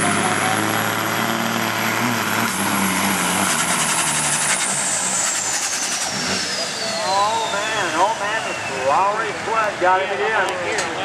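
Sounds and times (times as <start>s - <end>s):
diesel truck engine under load: 0.0s - 11.0s
high whistle: 5.2s - 9.0s.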